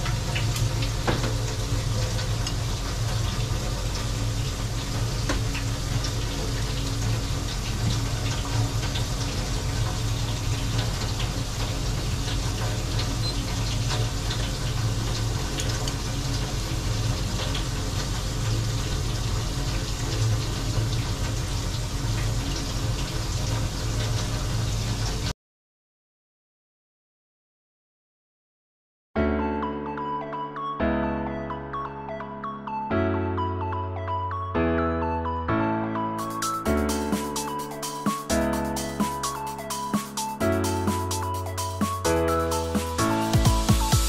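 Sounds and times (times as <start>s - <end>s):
water boiling with small pops: 0.0s - 24.3s.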